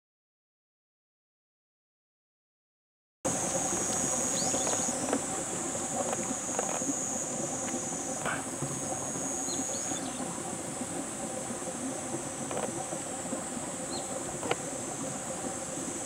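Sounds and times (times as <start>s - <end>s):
high-pitched insect drone: 3.3s - 11.2s
stream trickling over stones: 3.3s - 16.0s.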